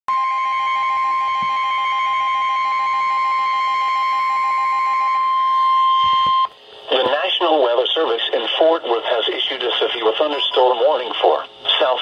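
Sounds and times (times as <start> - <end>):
steady alarm tone: 0.1 - 6.6.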